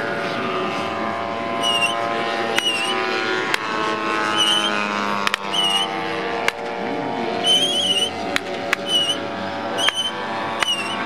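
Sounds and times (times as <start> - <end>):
model aircraft engine running: 0.0 - 11.0
short high chirps: 1.6 - 2.0, 8.8 - 9.2
sharp clicks: 9.8 - 11.0.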